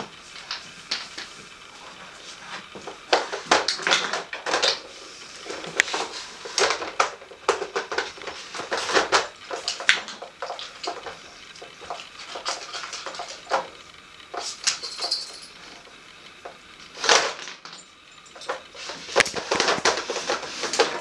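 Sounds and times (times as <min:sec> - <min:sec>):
dog pawing plastic puzzle: 0:18.5 - 0:21.0.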